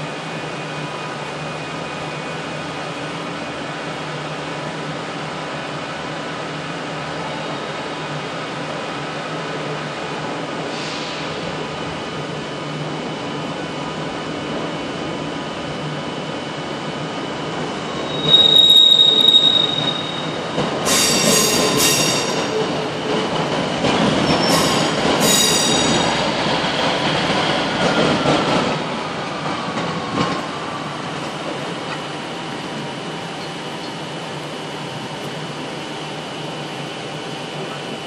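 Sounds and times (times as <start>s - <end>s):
rumble of train carriages: 0.1s - 38.0s
train wheels squealing: 17.9s - 22.8s, 24.2s - 26.3s.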